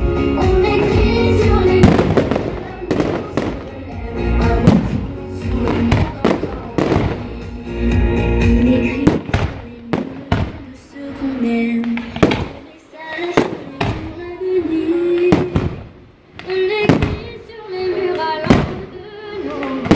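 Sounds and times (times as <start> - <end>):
music with long held notes: 0.0 - 19.9
firework shells bursting: 9.0 - 10.8, 11.7 - 14.3, 15.1 - 19.9.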